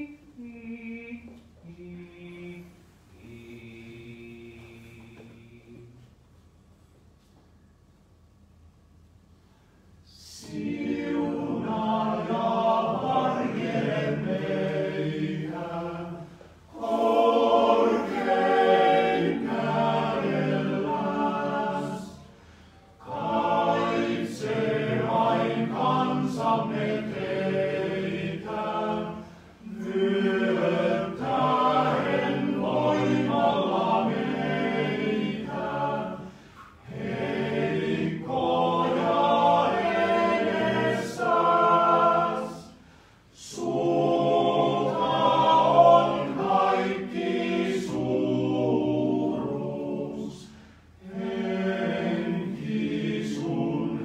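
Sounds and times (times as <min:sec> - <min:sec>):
men's choir singing a cappella: 0:00.0 - 0:06.0, 0:10.2 - 0:22.4, 0:23.0 - 0:54.0.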